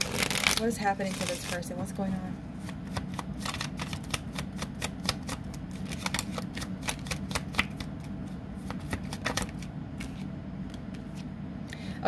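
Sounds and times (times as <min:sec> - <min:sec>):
cards snapping and flicking: 0:02.6 - 0:11.3.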